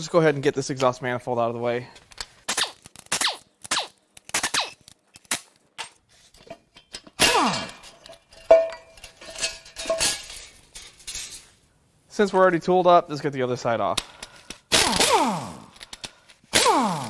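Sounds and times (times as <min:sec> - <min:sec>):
metal clank ringing: 0:06.7 - 0:11.4
pneumatic wrench bursts: 0:07.2 - 0:07.8, 0:14.7 - 0:17.0.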